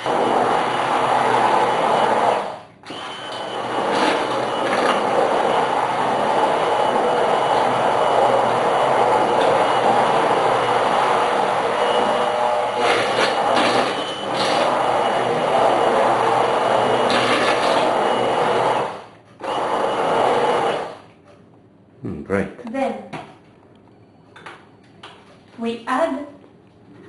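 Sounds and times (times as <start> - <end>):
immersion blender running in soup: 0.0 - 21.0.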